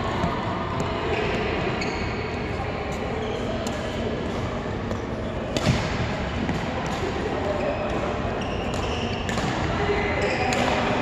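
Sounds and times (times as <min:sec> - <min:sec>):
sports hall noise: 0:00.0 - 0:11.0
shoes squeaking on floor: 0:01.1 - 0:02.4, 0:07.6 - 0:09.3
racket hitting shuttlecock: 0:04.9 - 0:07.1, 0:08.6 - 0:09.7, 0:10.4 - 0:11.0.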